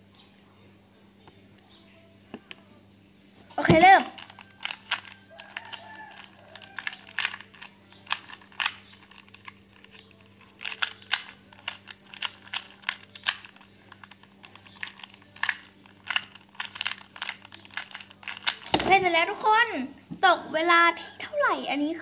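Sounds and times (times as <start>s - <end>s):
puzzle cube layers clicking: 6.1s - 18.7s.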